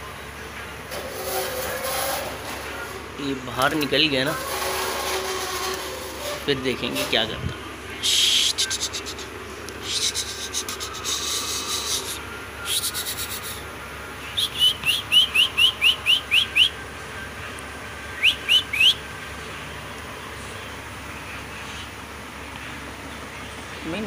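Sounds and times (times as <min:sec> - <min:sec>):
cockatiel chirping: 0:14.4 - 0:16.7, 0:18.2 - 0:19.0.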